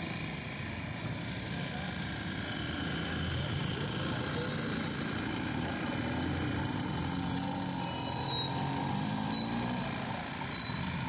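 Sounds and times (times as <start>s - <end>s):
machinery engine rumble: 0.0s - 11.0s
citrus press squeaking: 6.4s - 11.0s.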